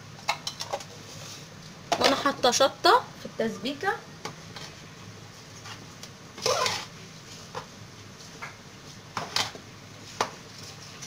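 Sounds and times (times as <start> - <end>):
spoon scraping rice: 6.4 - 6.9.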